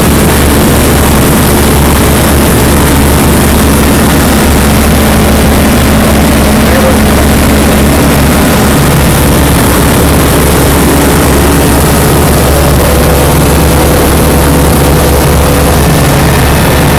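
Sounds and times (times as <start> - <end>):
light aircraft engine drone: 0.0 - 16.9.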